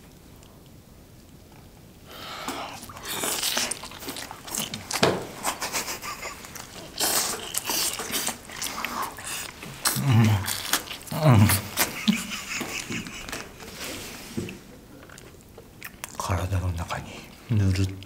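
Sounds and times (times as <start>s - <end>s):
people biting and chewing: 1.3s - 18.0s.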